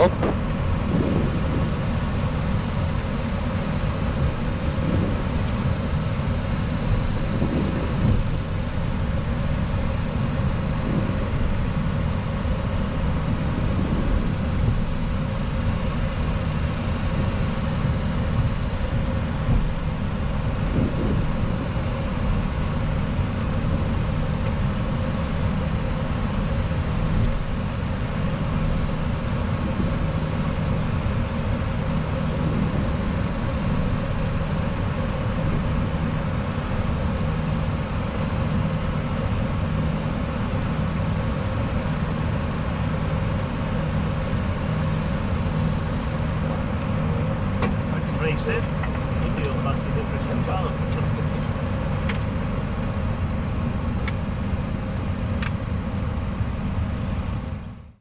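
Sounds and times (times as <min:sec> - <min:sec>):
jet engines idling rumble: 0:00.0 - 0:58.0.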